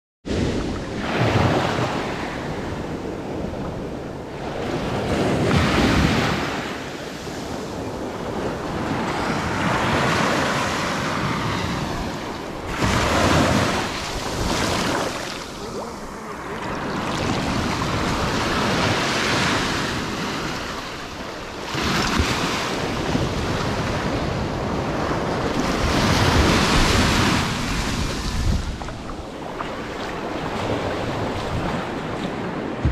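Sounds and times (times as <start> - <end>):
surf washing over sand: 0.3 - 32.9.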